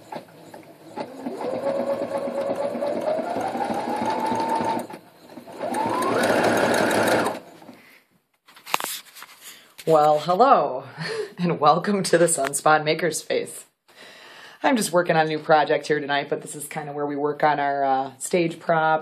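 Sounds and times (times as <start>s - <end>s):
sewing machine stitching: 0.0s - 7.7s.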